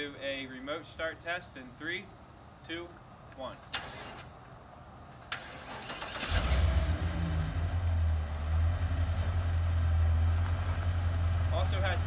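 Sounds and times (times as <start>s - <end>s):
engine cranking: 5.2s - 6.9s.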